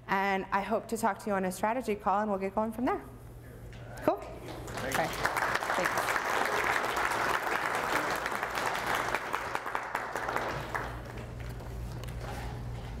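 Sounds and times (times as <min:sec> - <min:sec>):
audience applauding: 0:04.4 - 0:11.6.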